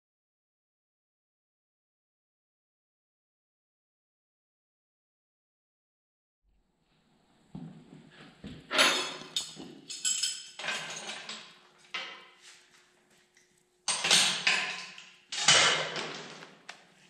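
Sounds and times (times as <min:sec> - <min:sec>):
metal clanking and clattering: 0:08.7 - 0:12.2, 0:13.9 - 0:16.4.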